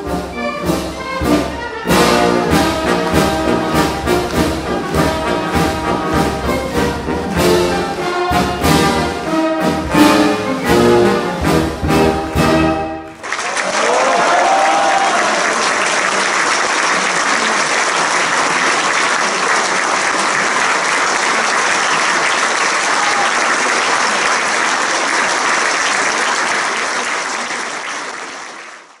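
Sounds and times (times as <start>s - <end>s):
audience applauding: 13.1s - 29.0s.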